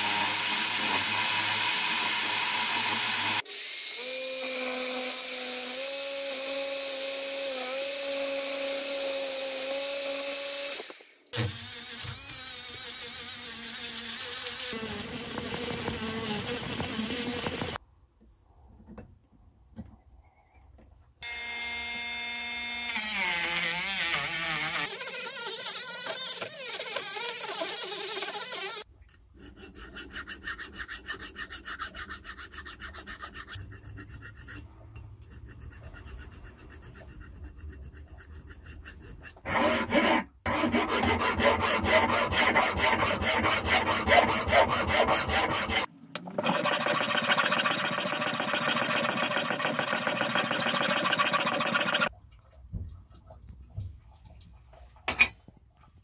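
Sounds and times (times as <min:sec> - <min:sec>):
hand file rasping on metal: 0:29.4 - 0:52.1.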